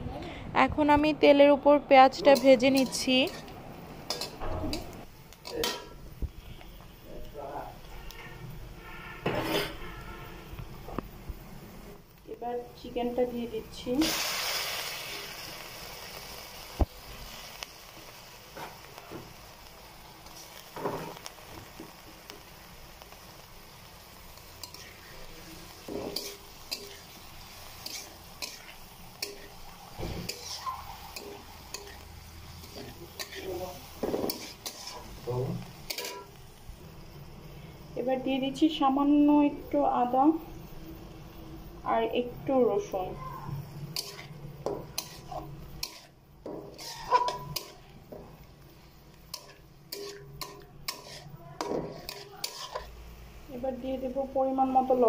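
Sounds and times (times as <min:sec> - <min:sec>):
frying sizzle: 0:00.0 - 0:55.0
spatula scraping metal pan: 0:08.9 - 0:10.0, 0:27.8 - 0:32.0, 0:32.6 - 0:35.1, 0:35.9 - 0:36.3, 0:43.9 - 0:47.9, 0:49.3 - 0:53.0.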